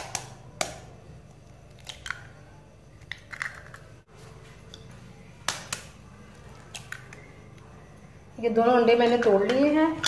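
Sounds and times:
eggshell cracking: 0.0s - 4.1s, 5.4s - 7.3s.

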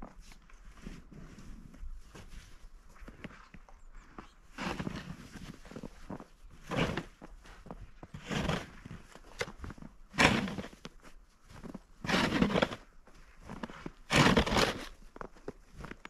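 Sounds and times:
snow shovel scraping snow: 4.5s - 15.1s.

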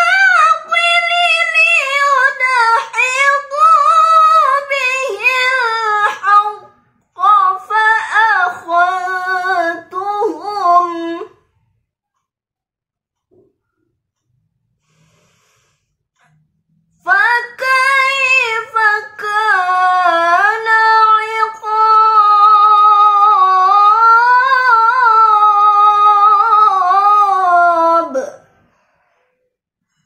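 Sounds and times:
girl reciting in melodic chant: 0.0s - 11.5s, 17.0s - 28.6s.

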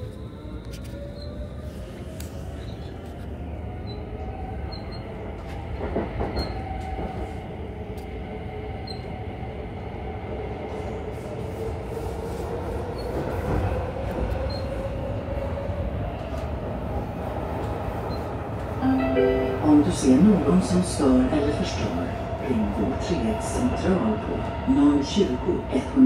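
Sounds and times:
train wheels rumbling on rails: 0.8s - 18.8s.

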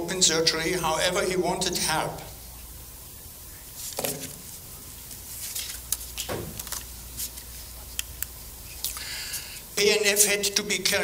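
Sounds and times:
low room hum: 0.0s - 11.0s
soft rustles: 3.7s - 8.0s.

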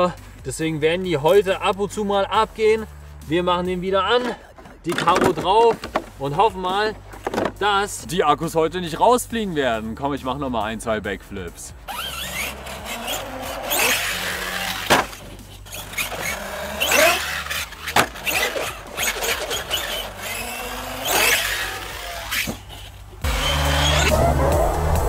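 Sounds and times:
rc truck motor whining: 11.9s - 25.0s.

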